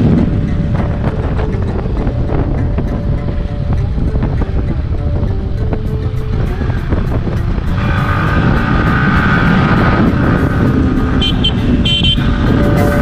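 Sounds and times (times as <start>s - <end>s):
motorcycle engine and road noise: 0.0s - 13.0s
wind rumble on microphone: 0.0s - 13.0s.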